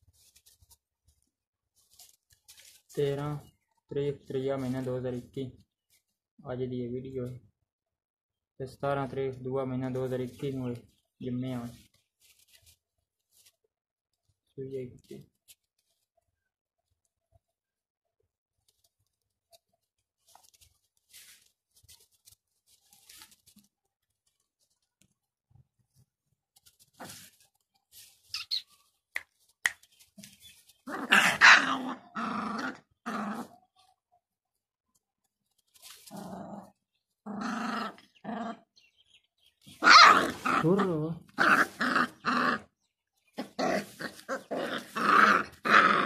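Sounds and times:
rustling in straw: 0.0 - 3.2, 11.5 - 13.6, 19.8 - 24.9, 26.0 - 31.9, 35.5 - 36.8, 39.6 - 42.4, 43.3 - 46.0
puppies growling: 30.9 - 33.6, 36.0 - 38.8, 39.8 - 46.0.

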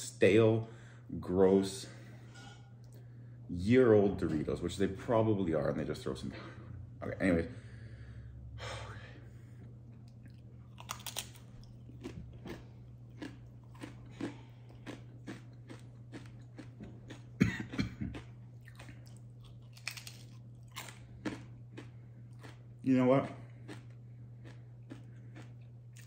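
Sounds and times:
low steady hum: 0.0 - 26.0
crunching chewing of chip: 9.6 - 26.0.

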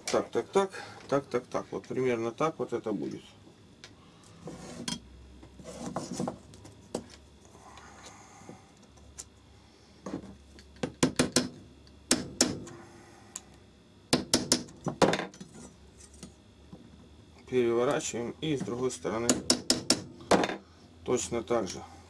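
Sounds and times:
hammer tapping metal: 14.1 - 14.7, 19.2 - 20.5.

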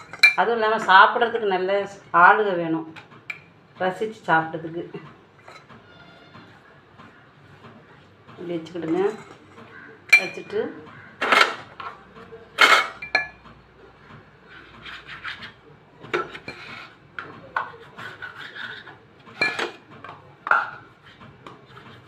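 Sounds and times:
metal utensils knocking and clinking: 0.0 - 0.9, 5.4 - 5.7, 8.6 - 10.6, 11.2 - 12.0, 12.6 - 13.4, 19.3 - 20.9.

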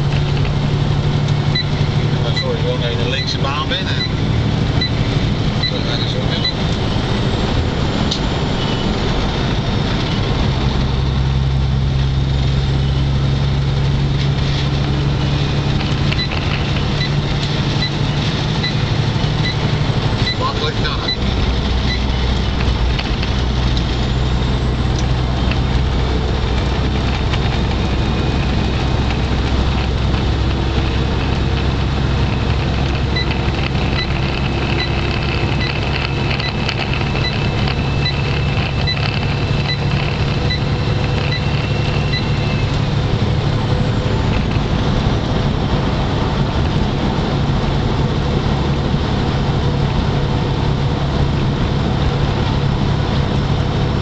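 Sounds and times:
road noise: 0.0 - 54.0
truck engine drone: 0.0 - 54.0
turn signal ticking: 0.1 - 6.9, 14.8 - 23.9, 24.9 - 43.5.

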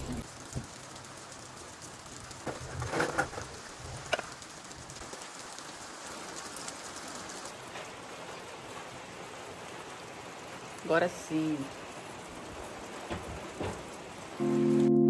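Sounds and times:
steady rain: 0.0 - 15.0
knocks and clatters: 13.0 - 14.0.

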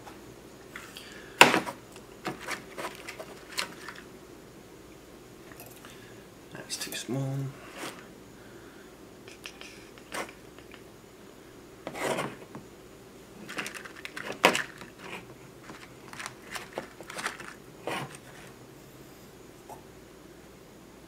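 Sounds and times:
rummaging through small parts: 2.2 - 4.1, 13.4 - 18.5.

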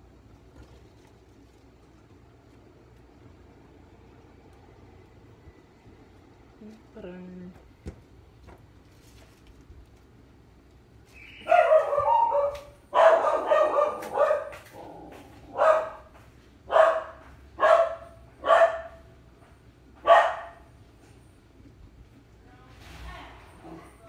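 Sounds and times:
dog barking: 11.4 - 16.1, 16.7 - 19.1, 20.0 - 20.7.

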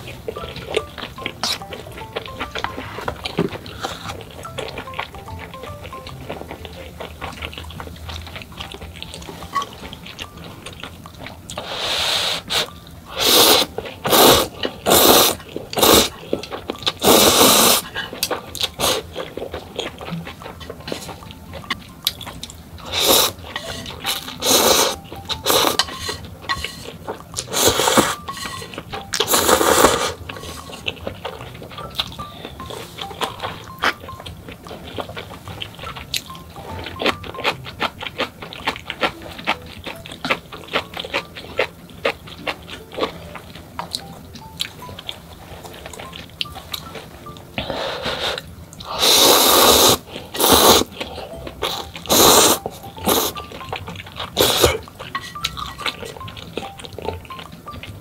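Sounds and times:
wet chewing: 0.0 - 58.0
noodles slurped: 11.5 - 16.2, 17.0 - 19.1, 48.0 - 51.0, 51.6 - 53.4, 54.3 - 56.2.

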